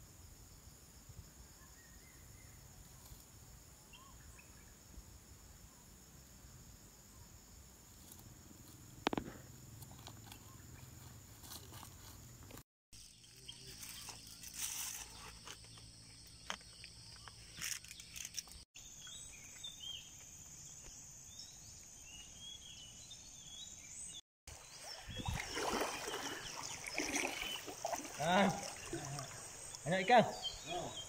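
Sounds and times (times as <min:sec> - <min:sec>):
bird chirps: 0:13.0 - 0:31.0
paddle splashing in water: 0:24.5 - 0:30.0
high insect drone: 0:25.3 - 0:31.0.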